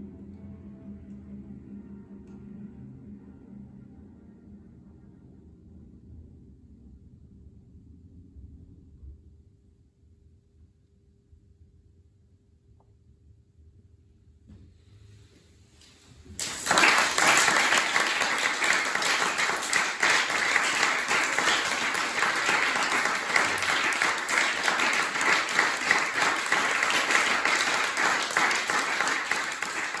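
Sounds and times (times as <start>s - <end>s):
audience applauding: 16.3s - 30.0s.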